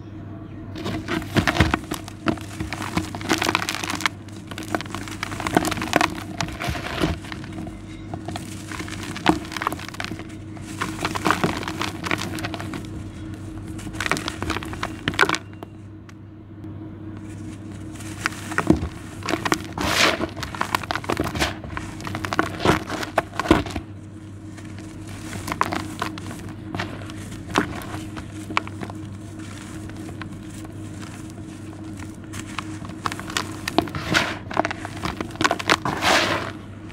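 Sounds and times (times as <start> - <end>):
charcoal clumps crunching: 0.7 - 16.2, 17.1 - 36.9
sand pouring into plastic tub: 0.8 - 7.6, 17.9 - 23.8, 24.7 - 36.6.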